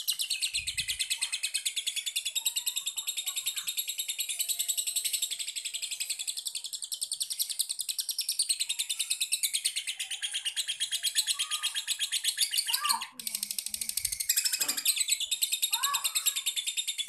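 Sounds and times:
lovebird chattering trill: 9.7 - 17.0.

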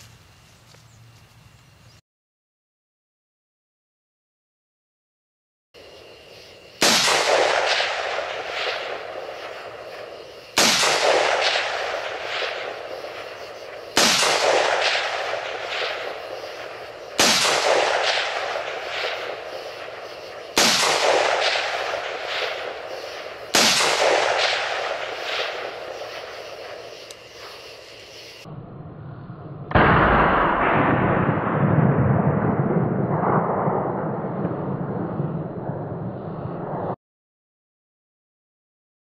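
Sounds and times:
rifle shots with rolling echo: 6.8 - 27.6, 29.7 - 36.9.

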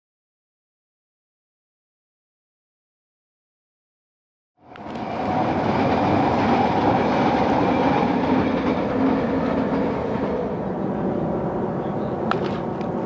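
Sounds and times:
loud rumbling noise: 4.7 - 13.0.

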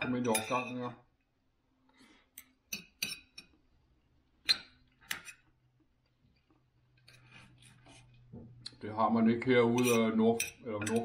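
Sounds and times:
cutlery clinking on a plate: 0.0 - 0.8, 2.7 - 3.6, 9.7 - 11.0.

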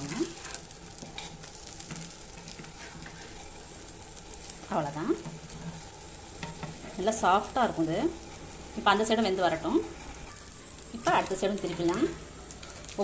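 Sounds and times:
metal spatula scraping pan: 0.0 - 3.6, 5.3 - 7.0
bread sizzling on griddle: 0.0 - 13.0.

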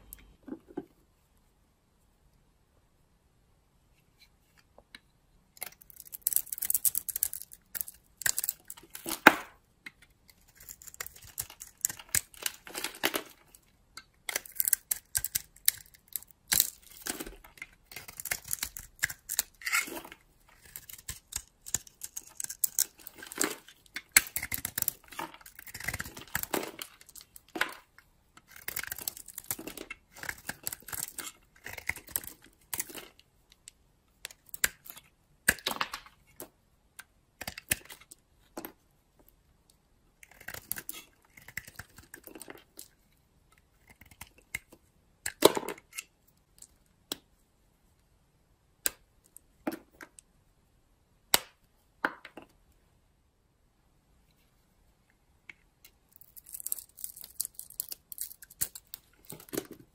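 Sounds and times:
knife shaving soap: 9.9 - 35.6, 40.2 - 42.9, 43.5 - 46.1.

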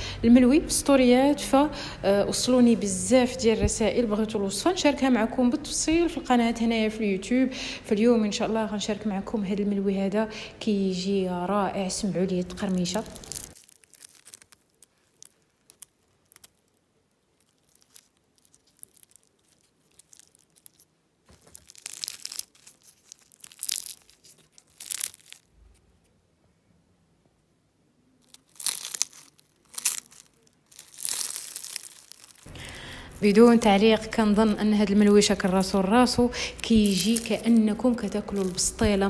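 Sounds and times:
crispy flatbread crunching: 12.3 - 26.1, 28.2 - 39.0.

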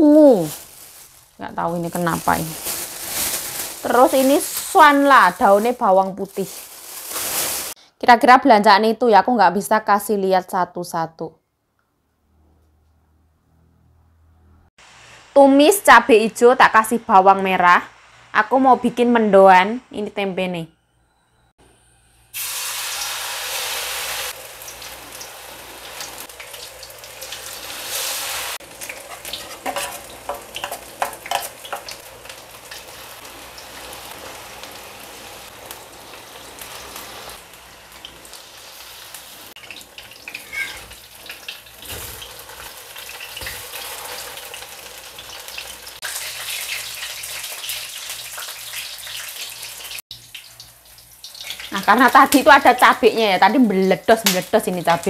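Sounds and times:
fritters sizzling in hot oil: 22.4 - 55.0.

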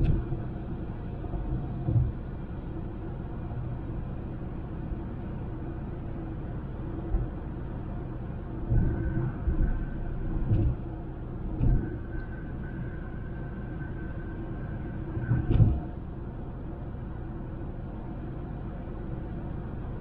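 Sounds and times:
car road and engine rumble: 0.0 - 20.0
faint high whine: 0.0 - 20.0.

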